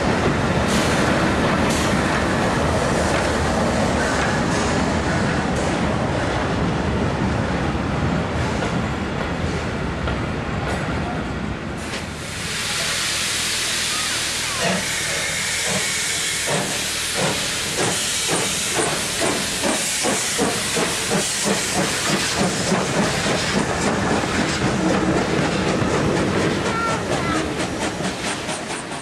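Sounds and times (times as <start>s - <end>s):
steam hiss: 0.6s - 2.4s, 11.8s - 29.0s
steam locomotive exhaust chuffs: 11.8s - 29.0s.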